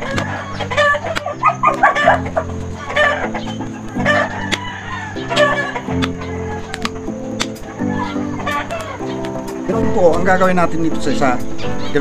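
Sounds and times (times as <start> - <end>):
chicken squawking in distress: 0.0 - 7.0, 7.6 - 9.2.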